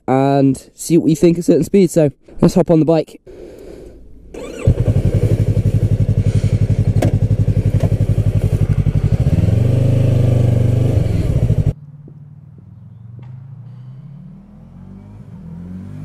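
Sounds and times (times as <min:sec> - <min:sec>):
motorcycle engine revving: 0:04.3 - 0:16.0.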